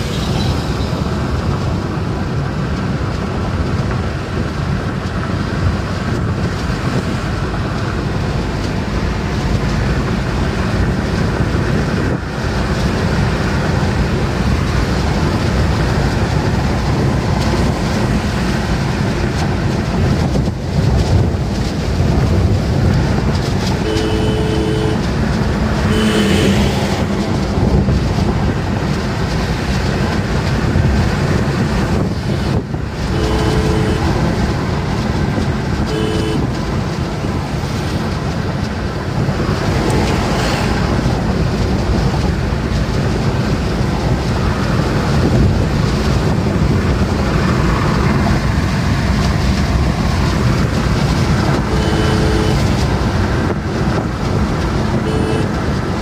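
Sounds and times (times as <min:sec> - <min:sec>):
car road and wind noise: 0:00.0 - 0:56.0
two-note car horn honking: 0:23.8 - 0:25.1, 0:25.9 - 0:27.0, 0:33.1 - 0:34.3, 0:35.8 - 0:36.6, 0:51.5 - 0:52.8, 0:55.0 - 0:55.6.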